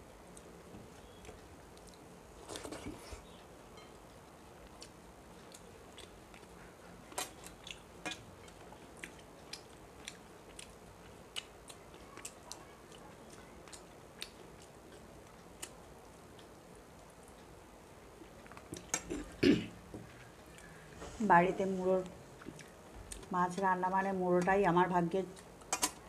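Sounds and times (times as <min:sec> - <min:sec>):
chewing: 0:00.3 - 0:19.4, 0:20.0 - 0:21.0, 0:22.0 - 0:24.6, 0:25.2 - 0:26.0.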